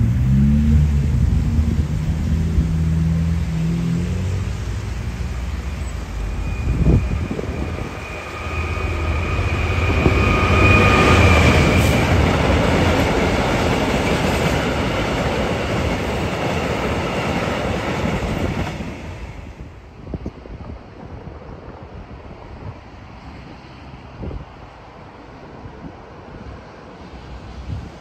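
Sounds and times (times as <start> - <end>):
train wagons rumbling and clattering: 0.0 - 23.4
diesel locomotive engine droning: 0.0 - 28.0
high-pitched squeal: 5.5 - 13.5.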